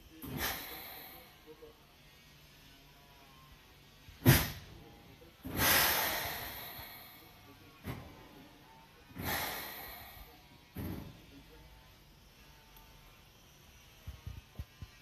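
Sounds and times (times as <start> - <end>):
compressed air hissing: 0.2 - 1.5, 5.4 - 7.4, 9.1 - 11.0.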